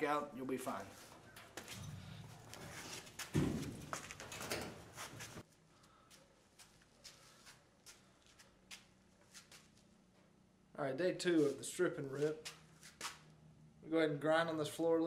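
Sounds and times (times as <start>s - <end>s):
heavy thump: 3.3s - 4.0s.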